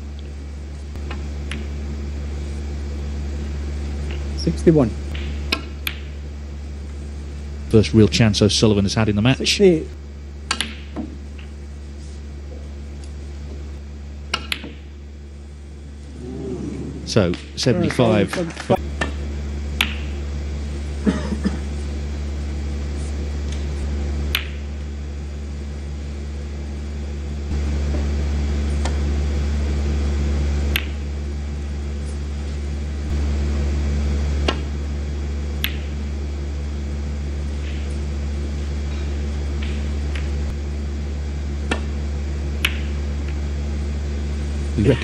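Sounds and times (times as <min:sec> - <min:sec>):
low hum: 0:00.0 - 0:45.0
snooker balls clicking: 0:14.3 - 0:14.9, 0:30.7 - 0:31.0, 0:35.6 - 0:35.9, 0:42.6 - 0:43.4.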